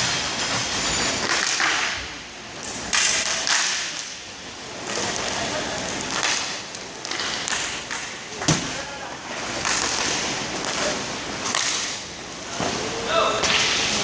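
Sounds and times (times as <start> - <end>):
skate wheels and sticks scraping: 0.0 - 14.0
stick and puck knocks: 2.6 - 4.2, 6.1 - 8.8, 9.6 - 12.0, 13.4 - 14.0.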